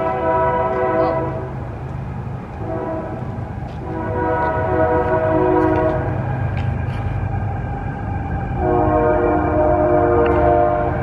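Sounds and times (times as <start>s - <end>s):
train horn blasts: 0.0s - 1.6s, 2.6s - 6.3s, 8.6s - 11.0s
low train rumble: 0.0s - 11.0s.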